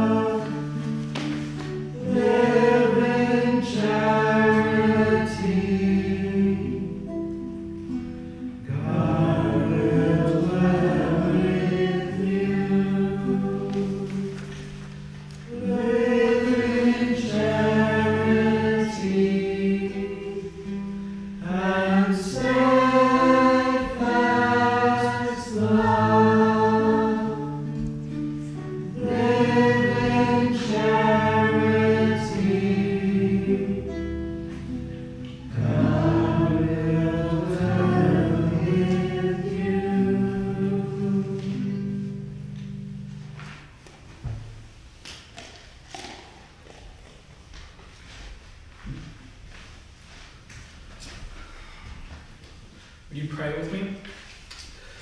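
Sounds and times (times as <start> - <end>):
congregation singing a chant: 0.0 - 7.9, 8.6 - 42.7
guitar accompanying: 0.0 - 47.2.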